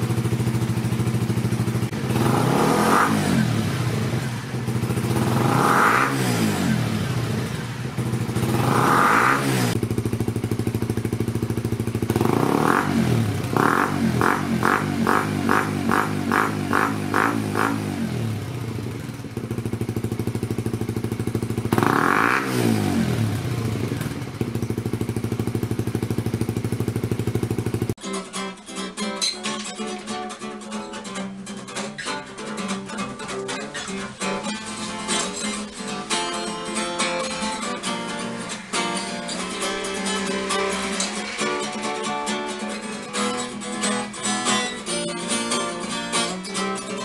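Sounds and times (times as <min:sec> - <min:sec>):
motorcycle engine idling: 0:00.0 - 0:28.0
guitar music: 0:00.0 - 0:47.0.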